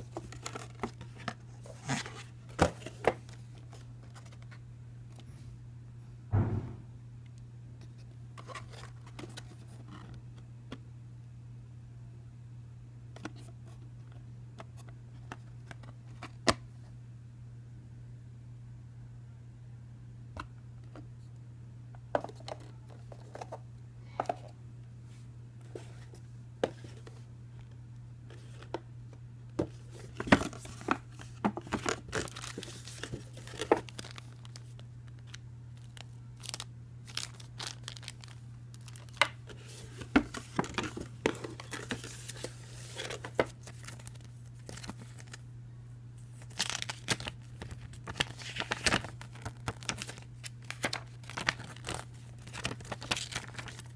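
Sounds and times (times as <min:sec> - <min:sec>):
steady low hum: 0:00.0 - 0:53.9
plastic wrap crinkling and tearing: 0:31.8 - 0:45.4, 0:46.4 - 0:53.9.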